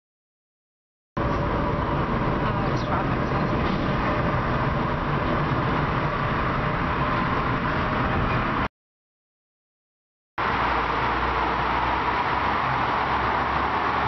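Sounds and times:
car road noise: 0:01.2 - 0:08.7, 0:10.4 - 0:14.0.

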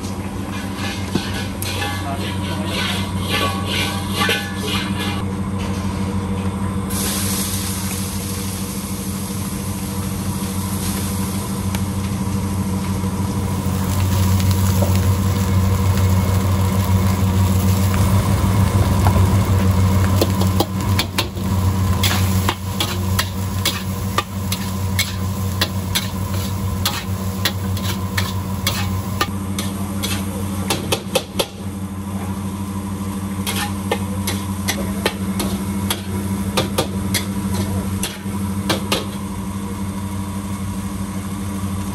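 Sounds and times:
low hum of stove: 0:00.0 - 0:41.9
metal ladle scraping a wok: 0:00.4 - 0:05.2, 0:22.0 - 0:30.4, 0:33.4 - 0:34.5.

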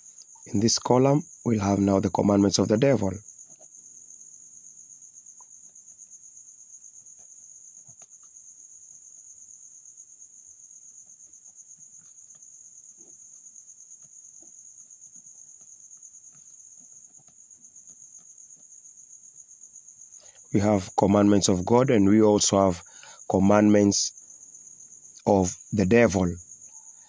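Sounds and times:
cricket chirping: 0:00.0 - 0:27.0
faint taps: 0:14.0 - 0:18.8.

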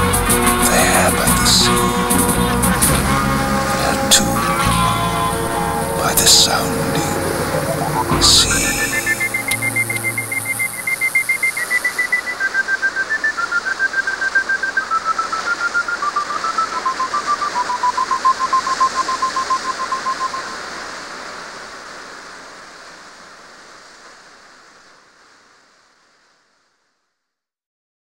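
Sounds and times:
hissing wash with rapid pulse: 0:00.3 - 0:26.0
thin pure-toned melody: 0:00.5 - 0:12.6.

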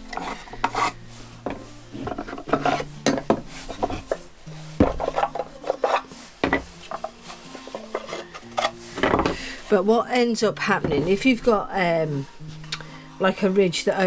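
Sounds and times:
wood scraping: 0:00.0 - 0:12.6
wooden drawers knocking: 0:06.4 - 0:07.1.

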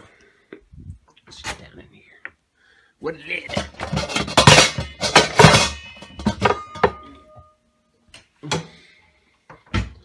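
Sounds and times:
metal pots clattering: 0:03.5 - 0:07.6.

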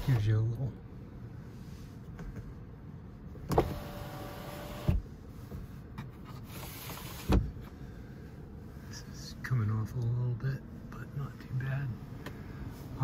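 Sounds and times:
sunshade sliding hiss: 0:06.5 - 0:07.4.

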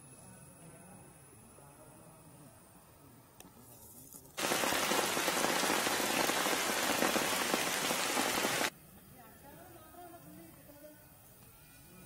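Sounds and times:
heavy rain falling: 0:04.4 - 0:08.7.

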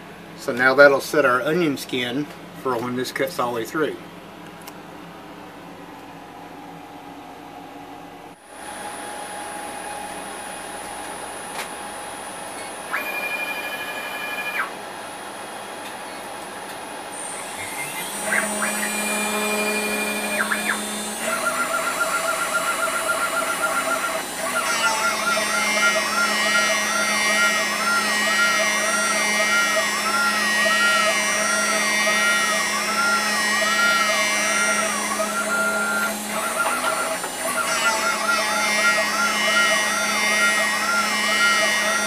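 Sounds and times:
stepper motors whining: 0:09.5 - 0:14.8, 0:15.8 - 0:42.0
router spindle running: 0:17.0 - 0:42.0
wavering pulsing cutting tone: 0:17.2 - 0:42.0.

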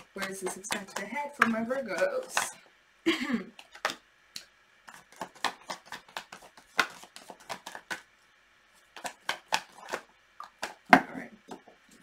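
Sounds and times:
cards being shuffled: 0:03.6 - 0:08.1, 0:08.8 - 0:10.9.

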